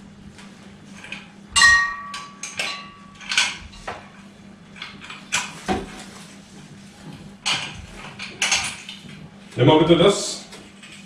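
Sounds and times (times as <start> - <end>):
ringing metal clink: 1.6 - 3.0
metal lamp clinks and knocks: 1.6 - 3.6.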